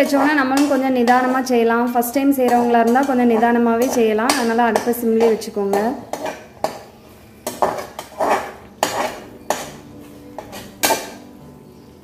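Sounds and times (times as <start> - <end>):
metal spoon scraping a pot: 0.0 - 11.3.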